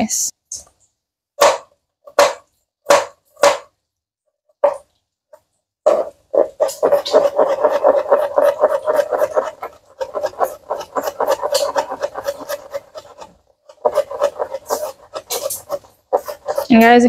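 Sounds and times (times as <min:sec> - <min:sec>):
knife chopping on plastic board: 0:01.4 - 0:03.8, 0:04.6 - 0:04.8, 0:05.9 - 0:16.8.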